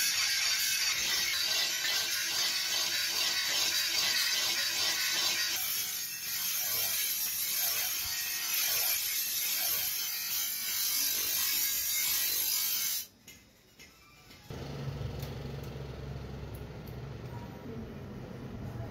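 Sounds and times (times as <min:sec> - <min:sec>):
bench grinder grinding steel: 0:00.0 - 0:13.1.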